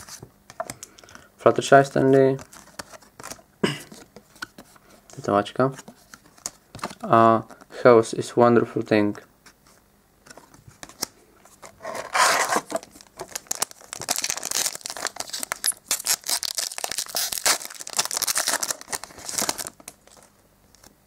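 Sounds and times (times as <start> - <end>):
wrapper ripping and crackling: 12.0 - 20.9.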